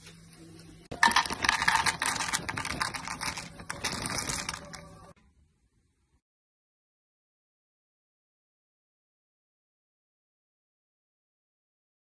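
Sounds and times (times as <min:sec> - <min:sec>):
almonds crackling in a frying pan: 0:01.0 - 0:04.9.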